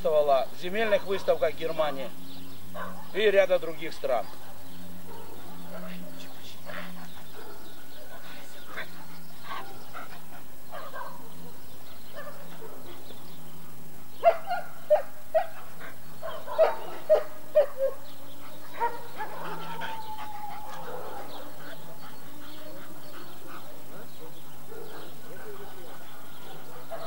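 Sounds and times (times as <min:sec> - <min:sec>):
dog barking: 0:02.8 - 0:03.2, 0:05.0 - 0:07.7, 0:10.7 - 0:13.0, 0:14.2 - 0:27.0.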